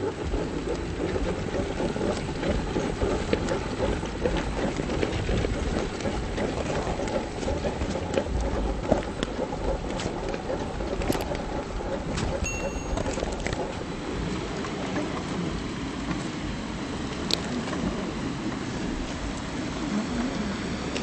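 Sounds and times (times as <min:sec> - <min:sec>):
low rumble of toy car drivetrain: 0:00.0 - 0:21.0.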